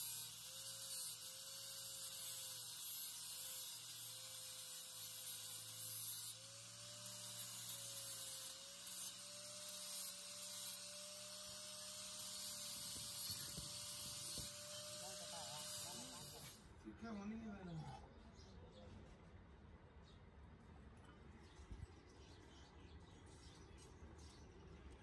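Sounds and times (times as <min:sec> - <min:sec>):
angle grinder motor whine: 0:00.0 - 0:16.6
abrasive disc hissing on metal: 0:09.9 - 0:16.6.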